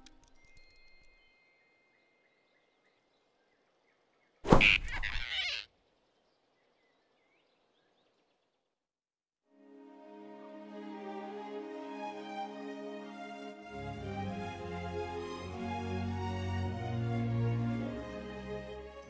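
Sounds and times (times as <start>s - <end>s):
faint forest ambience: 0.0s - 8.9s.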